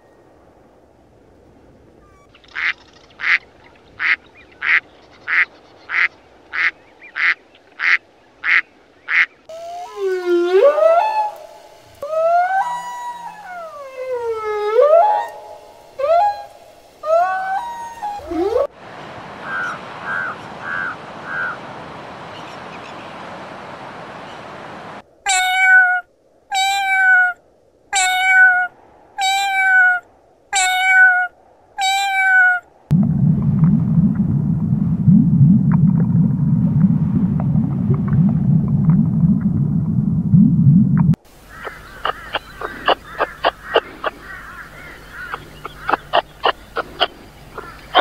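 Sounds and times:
steady hiss: 0.0s - 25.2s, 41.1s - 48.0s
crows cawing: 19.4s - 21.6s, 41.5s - 48.0s
cat meowing loudly: 25.2s - 32.7s
steady low rumble: 32.7s - 48.0s.

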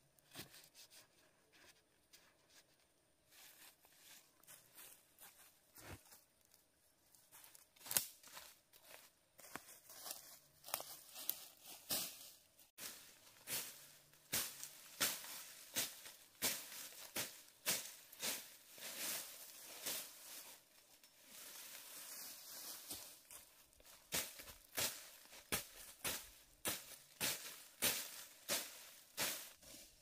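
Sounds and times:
dry vegetation crunching and rustling: 7.3s - 30.0s.

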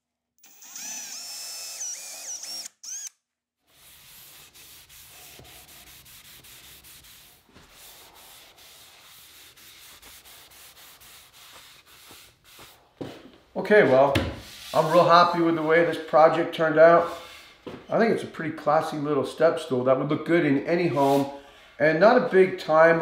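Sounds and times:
drill motor whine: 0.4s - 3.2s
cloth rag rubbing wood: 3.6s - 16.1s, 20.9s - 21.3s.

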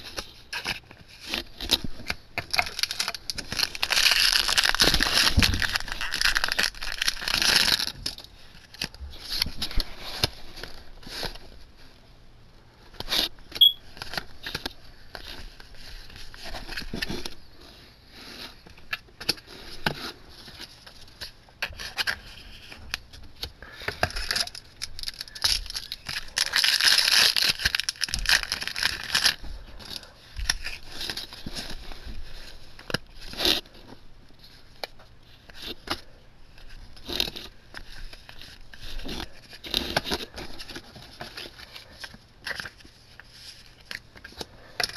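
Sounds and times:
foil wrappers crinkling: 0.0s - 11.6s, 18.6s - 33.9s.

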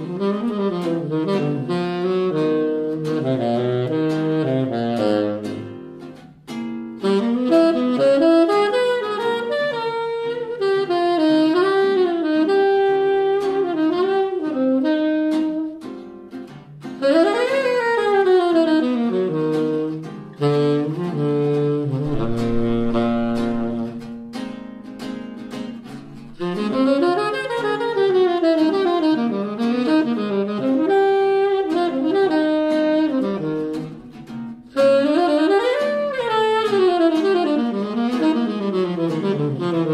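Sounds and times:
saxophone melody: 0.0s - 39.9s
acoustic guitar chords: 19.0s - 27.4s.

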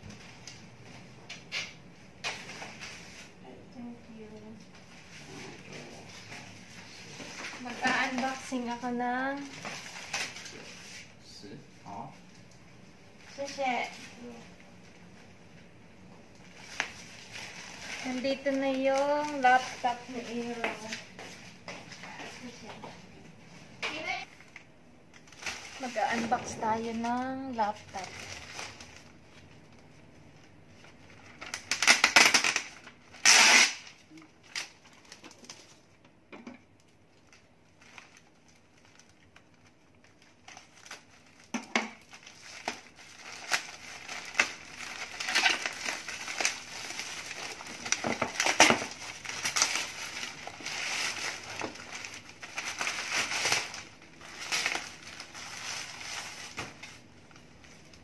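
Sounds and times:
plastic mailer bag crinkling: 16.5s - 21.1s, 25.2s - 29.7s, 37.2s - 58.0s
plastic bag tearing: 31.4s - 35.8s, 37.7s - 58.0s.

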